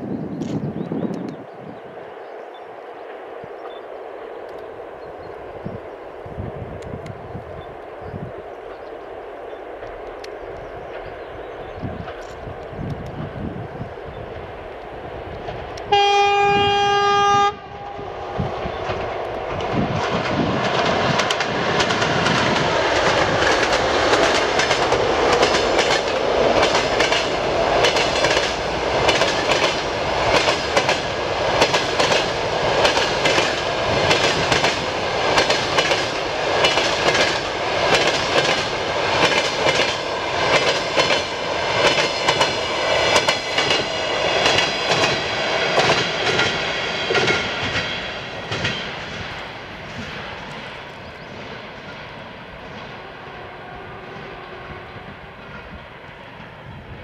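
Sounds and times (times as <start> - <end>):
train approaching: 0.0 - 57.0
locomotive horn blast: 15.9 - 18.1, 53.2 - 55.8
train wheels clattering over rail joints: 18.7 - 53.0.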